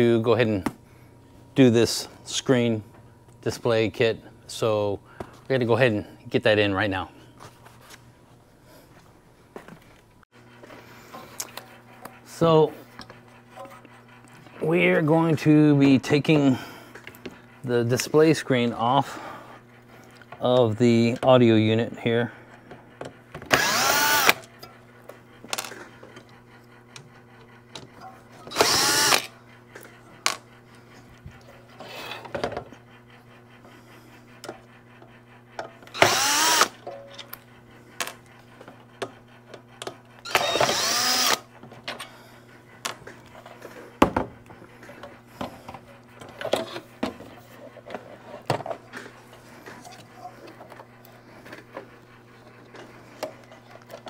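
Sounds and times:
cordless drill motor whirring: 23.5s - 24.5s, 28.5s - 29.4s, 35.9s - 36.8s, 40.2s - 41.5s.

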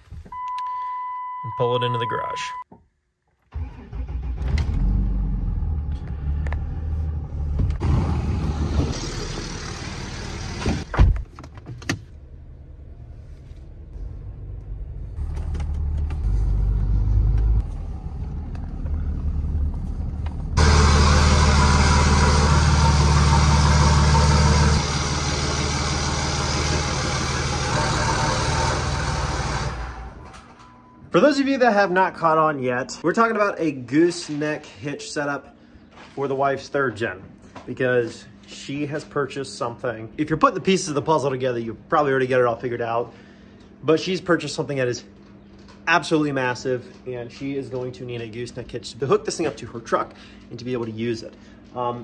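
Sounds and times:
diesel truck engine running: 14.0s - 30.2s.

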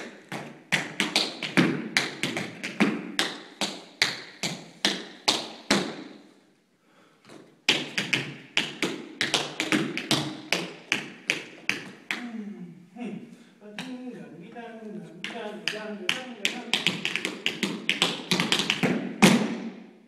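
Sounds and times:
tap shoes on wooden floor: 7.3s - 12.0s, 15.2s - 19.6s.

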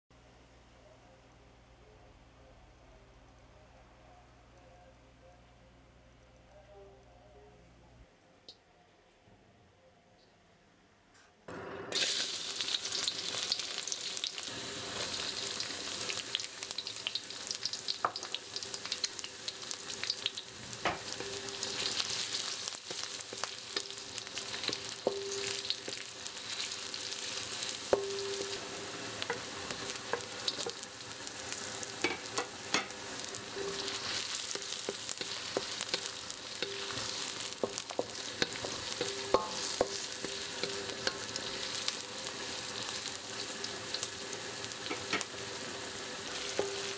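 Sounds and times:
food sizzling in hot oil: 11.9s - 46.9s
spatula scraping wok: 20.8s - 46.9s.

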